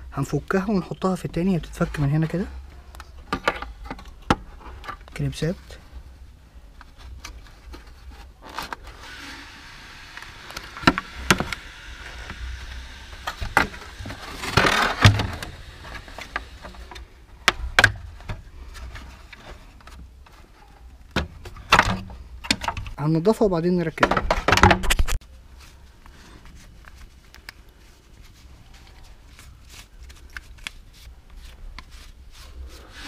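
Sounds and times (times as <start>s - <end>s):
plastic rubbing and scraping: 1.9s - 23.0s.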